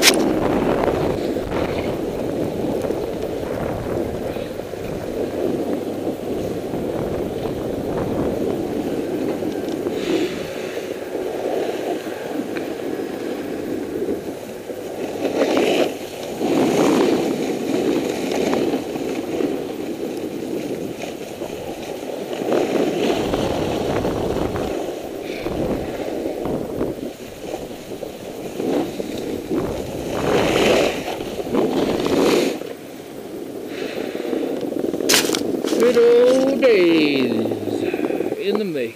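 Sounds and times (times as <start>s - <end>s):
snowboard scraping on snow: 0.0s - 38.9s.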